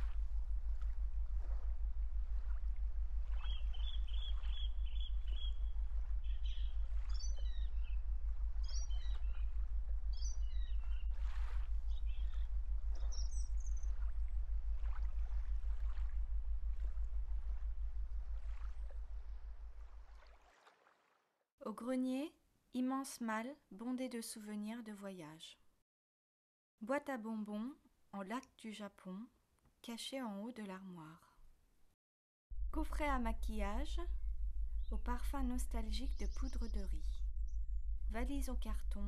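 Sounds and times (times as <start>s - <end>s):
low rumble: 0.0s - 20.2s, 32.5s - 39.0s
birds chirping: 3.3s - 11.1s, 11.9s - 14.0s, 34.7s - 38.0s.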